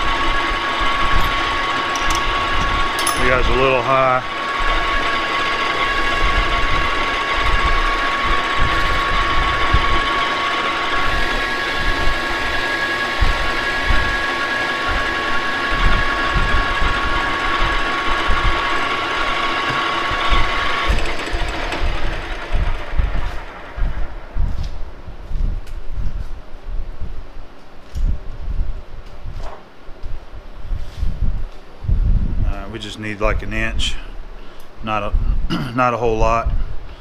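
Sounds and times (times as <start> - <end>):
metal lathe running: 0.0 - 24.4
high whine of lathe cutting: 0.0 - 24.6.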